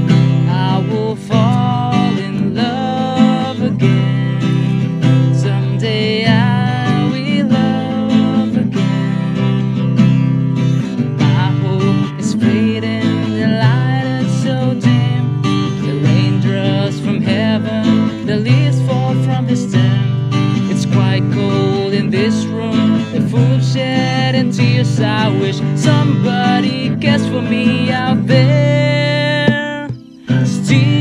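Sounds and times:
man singing: 0:00.0 - 0:09.4, 0:11.0 - 0:31.0
strummed acoustic guitar: 0:00.0 - 0:31.0.

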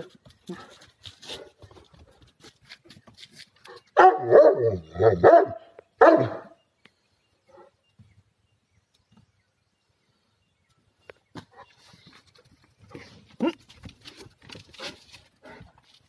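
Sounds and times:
dog barking: 0:04.0 - 0:06.6.

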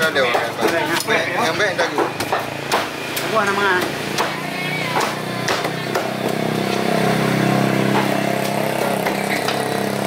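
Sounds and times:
small engine running: 0:06.0 - 0:10.0.

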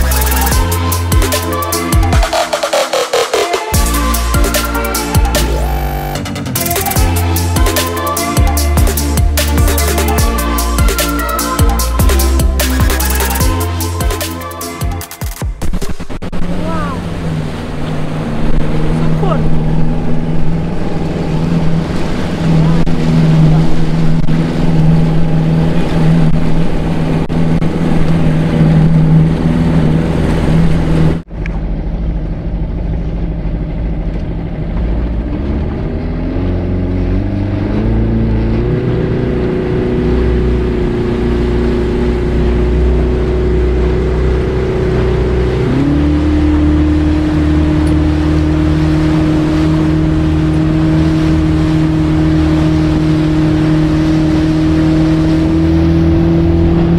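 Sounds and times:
rushing water noise: 0:00.0 - 0:31.3, 0:36.1 - 0:56.9
outboard motor running: 0:15.6 - 0:56.9.

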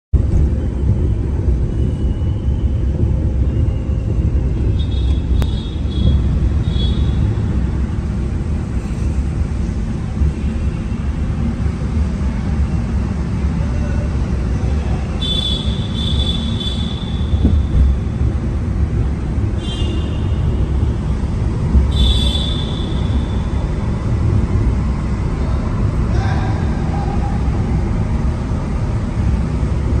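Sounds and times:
engine and tyre rumble: 0:00.1 - 0:30.0.

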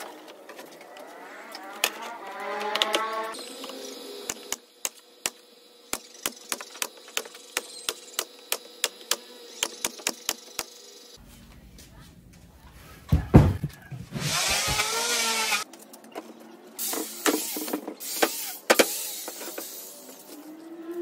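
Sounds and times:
power tool motor whining: 0:01.0 - 0:04.6, 0:14.1 - 0:15.6, 0:16.8 - 0:21.0
heavy thumps: 0:13.1 - 0:15.0.

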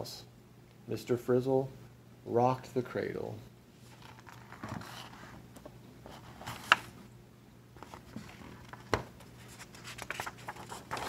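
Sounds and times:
page turning: 0:03.8 - 0:05.4, 0:06.1 - 0:07.0, 0:07.8 - 0:11.0
paper rustling: 0:03.8 - 0:05.4, 0:06.1 - 0:07.0, 0:07.8 - 0:11.0.

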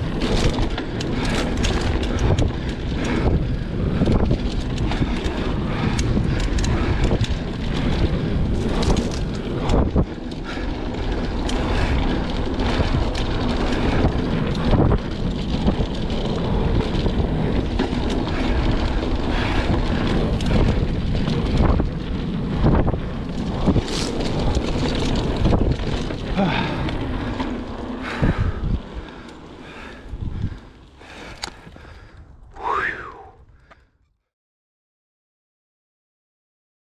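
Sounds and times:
wind on microphone: 0:00.0 - 0:27.4, 0:28.0 - 0:29.1, 0:29.7 - 0:33.6
bike knocks and rattles: 0:00.0 - 0:30.6
tyres rolling on dirt: 0:00.0 - 0:32.2.

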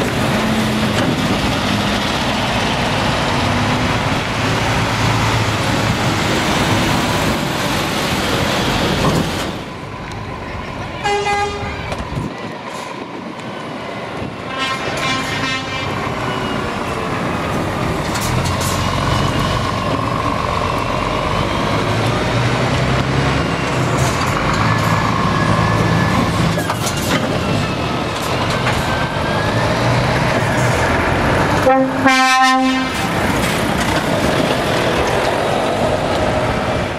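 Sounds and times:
truck diesel engine under load: 0:00.0 - 0:10.6, 0:15.4 - 0:32.1, 0:32.7 - 0:36.9
loud air horn blast: 0:11.0 - 0:11.8, 0:14.5 - 0:16.0, 0:31.6 - 0:33.2.

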